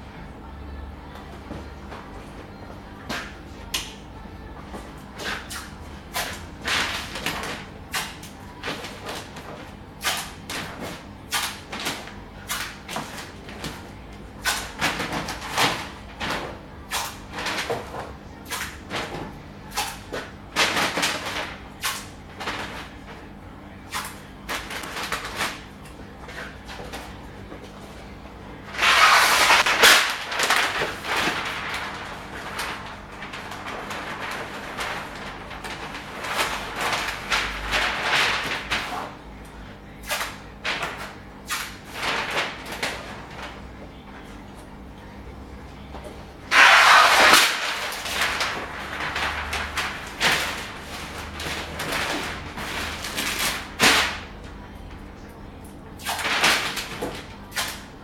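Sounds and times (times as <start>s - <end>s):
paper crinkling and rustling: 3.1s - 28.0s, 28.6s - 44.0s, 46.5s - 54.7s, 56.0s - 58.0s
masking tape handled: 28.7s - 39.0s, 46.5s - 54.2s.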